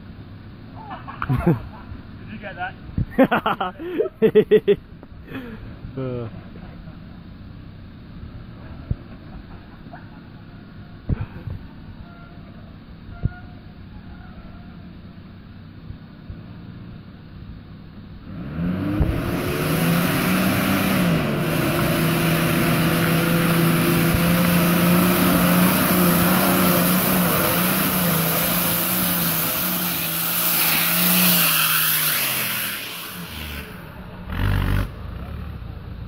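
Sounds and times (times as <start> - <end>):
engine revving under load: 18.2 - 36.0.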